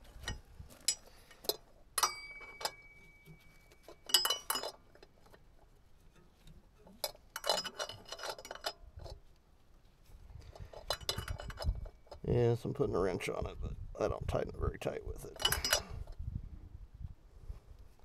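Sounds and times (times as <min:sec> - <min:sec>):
metal tools clinking on metal: 0:00.2 - 0:05.4, 0:07.0 - 0:09.2, 0:10.6 - 0:12.3, 0:15.2 - 0:16.1.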